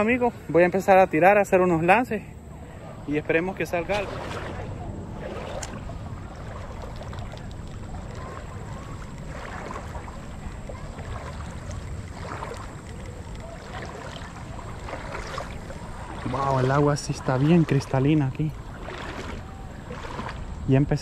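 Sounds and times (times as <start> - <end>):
shallow river water flowing: 0.0 - 21.0.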